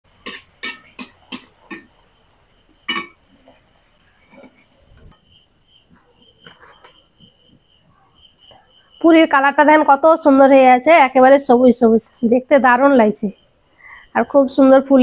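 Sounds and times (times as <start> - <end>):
kitchenware clinking and knocking: 0.1 - 2.0, 2.8 - 3.5.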